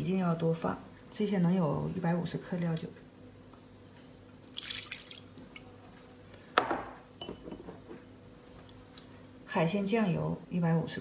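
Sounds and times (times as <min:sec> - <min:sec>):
liquid splashing into glass dish: 0:04.4 - 0:05.6.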